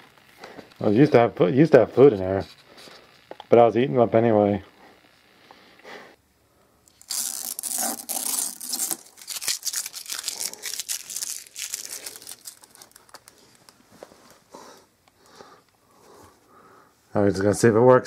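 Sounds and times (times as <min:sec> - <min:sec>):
paper bag crinkling: 0:06.9 - 0:13.8.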